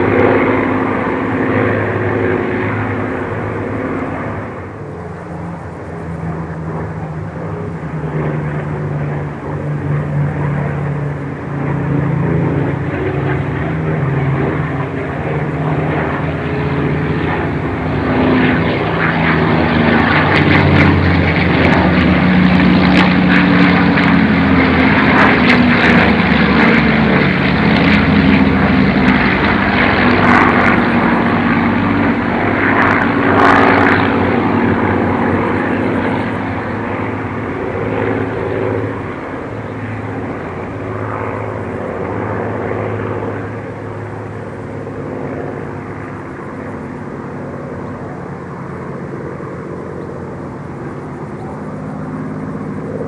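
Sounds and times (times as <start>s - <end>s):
propeller aircraft engine overhead: 0.0s - 53.0s.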